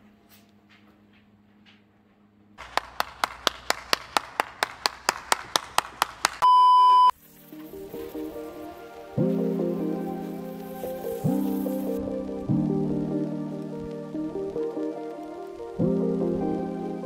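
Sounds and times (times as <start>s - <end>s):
person clapping: 2.6s - 6.4s
electronic beep: 6.4s - 7.2s
music: 7.2s - 17.0s.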